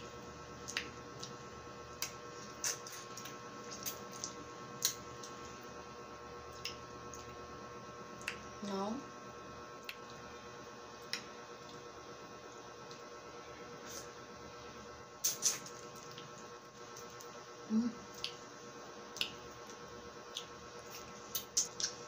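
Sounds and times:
faint electrical hum: 0.0 - 22.0
wet mouth clicks and smacks: 6.6 - 7.3, 9.8 - 10.2, 15.2 - 16.3, 18.1 - 18.4, 19.1 - 19.4, 20.3 - 22.0
person humming: 17.7 - 18.0.

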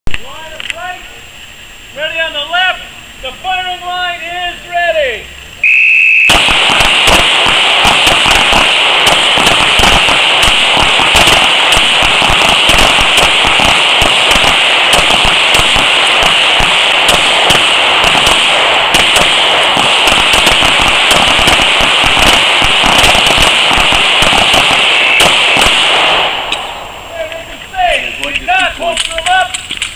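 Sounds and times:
handguns firing rapidly: 6.3 - 26.6.

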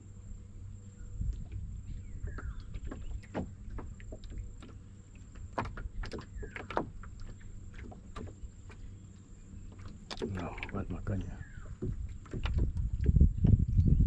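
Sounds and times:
waves lapping against metal hull: 0.0 - 14.0.

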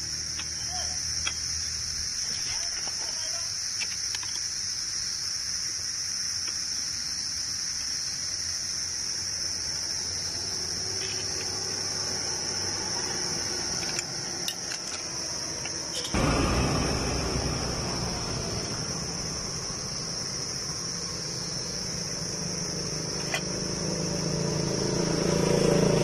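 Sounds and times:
insects chirring: 0.0 - 26.0
rush of noise: 16.1 - 20.8.

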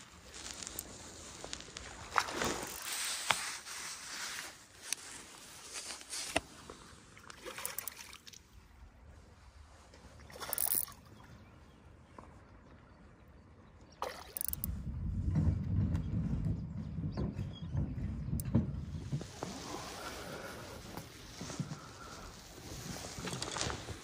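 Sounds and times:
river water sloshing and splashing: 6.2 - 13.0, 13.9 - 14.7
wind buffeting microphone: 14.5 - 24.0.

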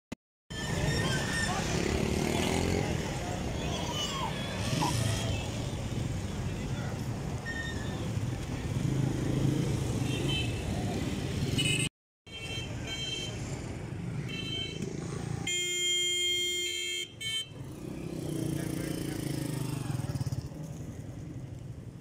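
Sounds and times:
vehicle horn beeps: 15.5 - 17.6
low rumble of engines: 17.1 - 22.0.

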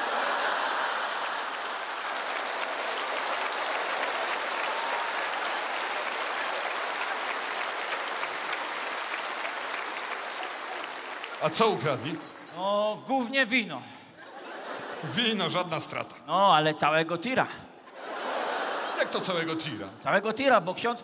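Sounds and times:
audience applauding: 0.0 - 13.2.

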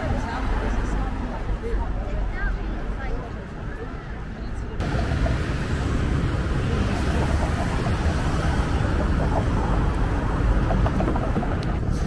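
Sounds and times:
cars driving past: 4.8 - 12.0.

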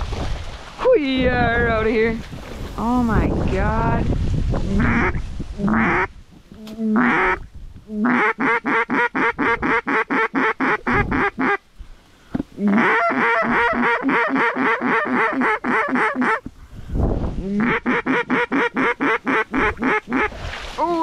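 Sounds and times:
duck quacking rapidly: 4.7 - 6.1, 7.0 - 7.4, 8.0 - 11.6, 12.6 - 16.4, 17.5 - 20.3.

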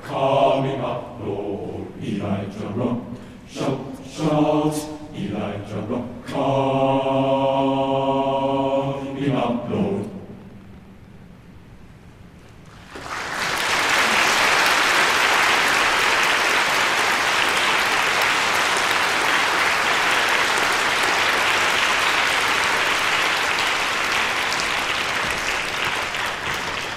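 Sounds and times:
audience applauding: 12.7 - 26.9.

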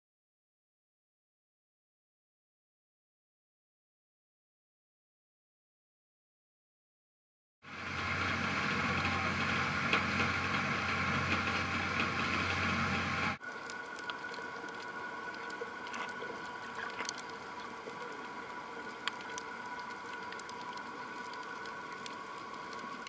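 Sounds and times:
low hum: 7.7 - 23.0
muffled underwater rush: 7.7 - 23.0.

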